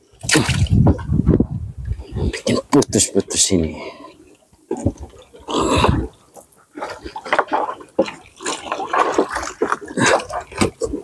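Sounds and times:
water splashing and dripping: 0.0s - 1.2s, 4.6s - 11.0s.

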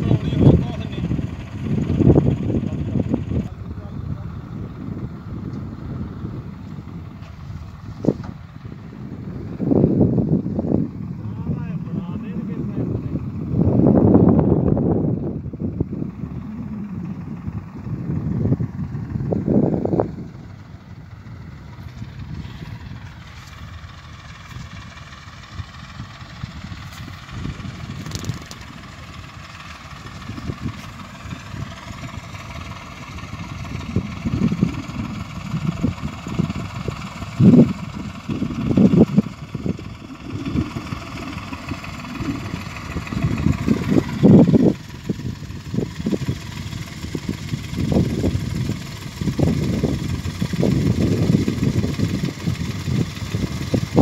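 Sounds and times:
tractor diesel engine running: 0.0s - 54.0s
wind buffeting on microphone: 0.0s - 54.0s.

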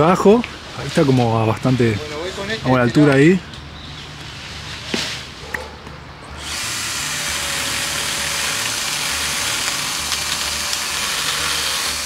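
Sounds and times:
power saw cutting wood: 6.4s - 12.0s.

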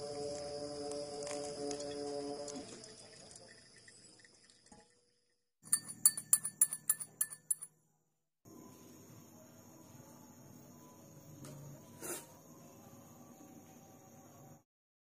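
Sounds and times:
spoon clinking against glass: 5.7s - 7.7s.

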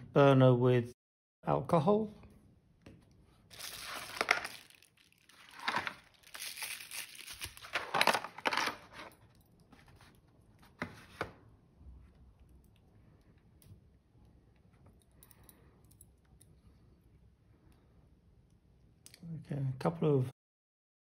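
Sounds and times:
bubble wrap crinkling: 3.5s - 8.0s.

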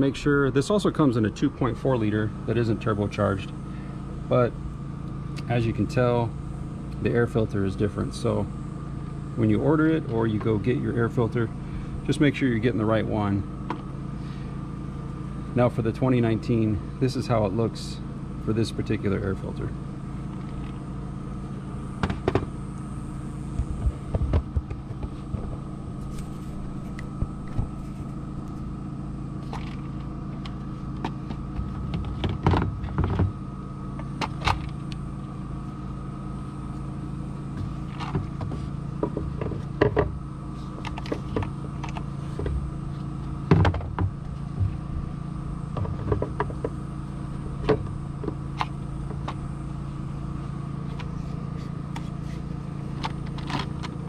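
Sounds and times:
low hum: 0.0s - 54.0s
plastic air filter clicks and knocks: 22.0s - 22.5s, 23.6s - 25.6s, 30.4s - 33.4s, 37.6s - 40.2s, 43.4s - 44.8s, 45.7s - 46.8s.

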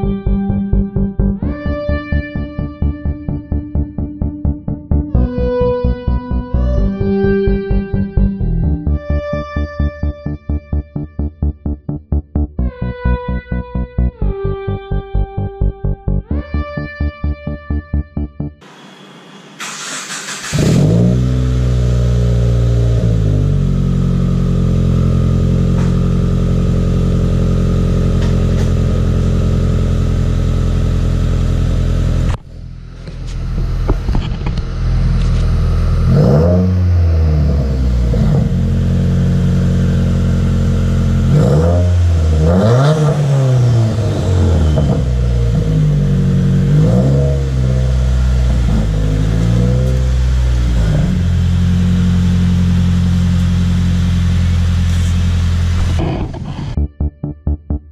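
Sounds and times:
car engine revving: 14.2s - 57.9s
car engine starting and idling: 14.2s - 57.9s.

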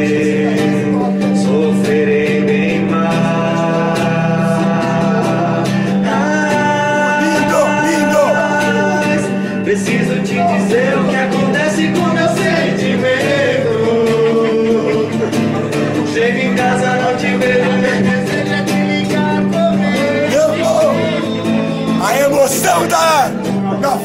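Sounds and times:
man singing: 0.0s - 24.0s
strummed classical guitar: 0.0s - 24.0s.

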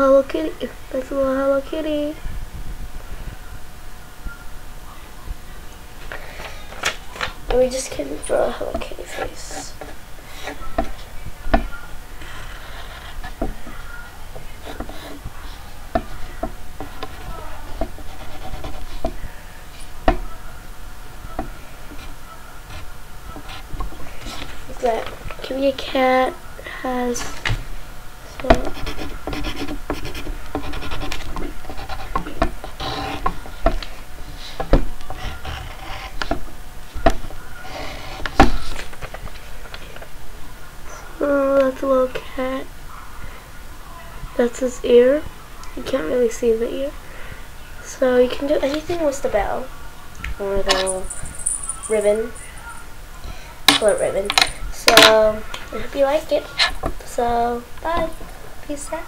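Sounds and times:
drawing tool scratching paper: 12.3s - 13.4s, 16.8s - 19.2s, 28.4s - 33.4s.

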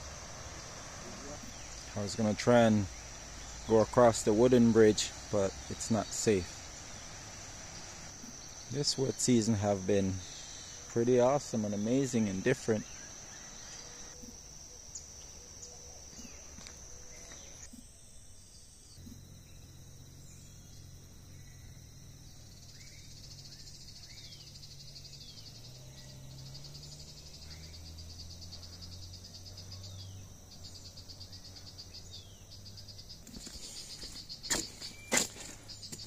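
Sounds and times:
insects trilling: 0.0s - 36.0s
bird chirps: 18.5s - 36.0s.

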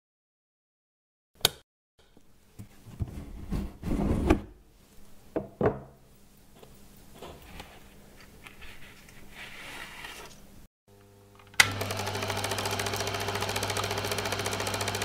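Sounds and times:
desk lamp switch click: 1.4s - 1.6s
cardboard box sliding and knocking: 2.6s - 4.5s, 7.2s - 10.5s.

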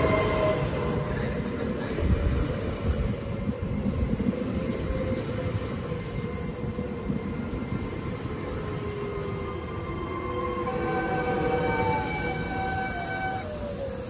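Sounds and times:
train wheels rumbling past: 0.0s - 14.0s.

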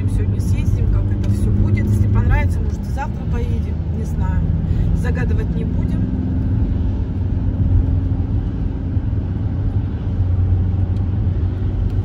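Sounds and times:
car driving on wet road: 0.0s - 12.0s.

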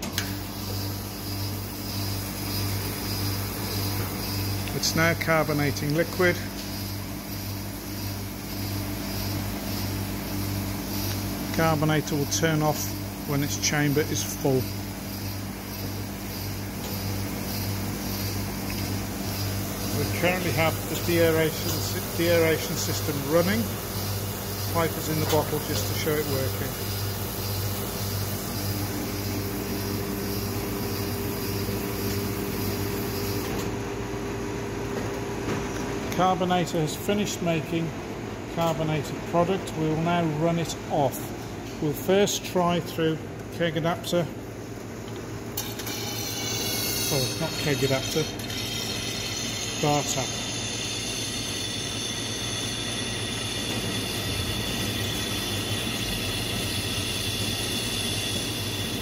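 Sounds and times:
machine humming: 0.0s - 59.0s
high hiss: 19.2s - 33.5s.

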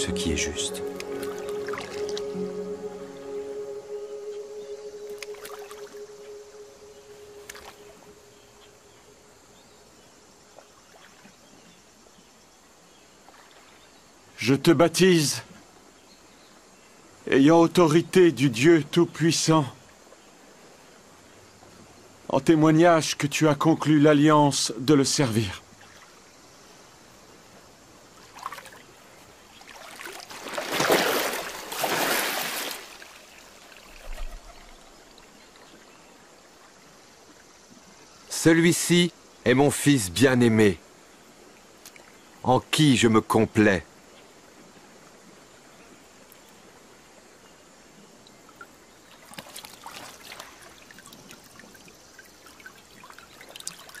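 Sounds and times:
river water splashing: 0.0s - 14.4s, 25.6s - 38.6s, 40.8s - 42.5s, 48.1s - 54.0s
faint steady hiss: 0.0s - 54.0s
water splashing and sloshing: 28.2s - 37.9s, 41.4s - 42.4s, 48.2s - 54.0s.

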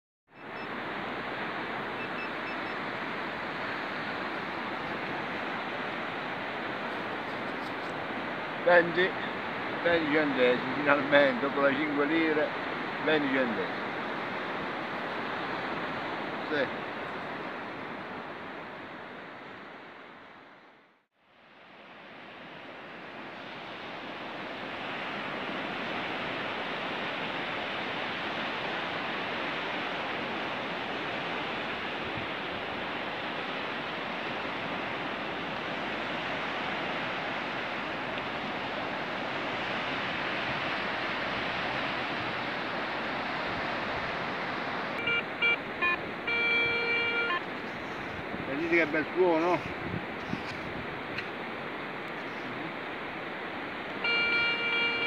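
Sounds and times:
metal detector beeps: 0.4s - 0.7s, 2.0s - 2.8s, 45.0s - 47.5s, 54.0s - 55.0s
surf hissing: 22.1s - 50.4s.

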